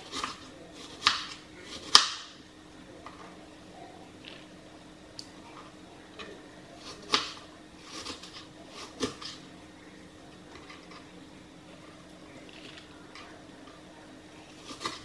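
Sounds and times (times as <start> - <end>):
knife cutting onion on board: 0.0 - 2.3, 6.8 - 9.4, 14.6 - 15.0.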